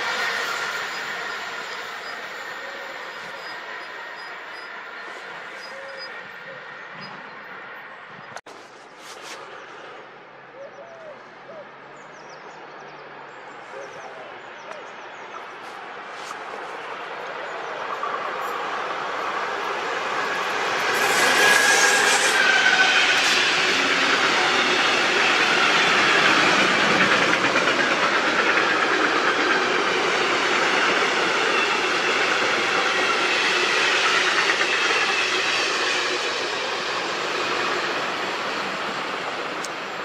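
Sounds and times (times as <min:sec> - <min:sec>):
train wheels clattering over rails: 0:18.0 - 0:40.0.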